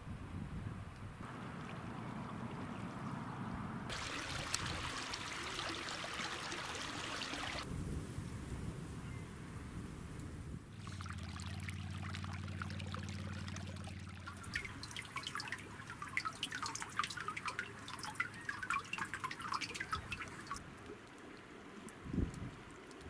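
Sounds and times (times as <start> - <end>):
meltwater dripping into pool: 3.9 - 7.7, 10.8 - 23.0
low steady hum: 9.2 - 23.0.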